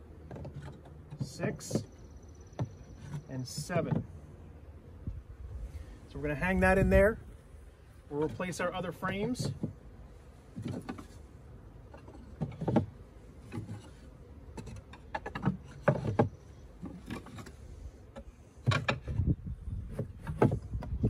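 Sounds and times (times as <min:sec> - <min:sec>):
wooden frames knocking: 0:09.3 - 0:09.8.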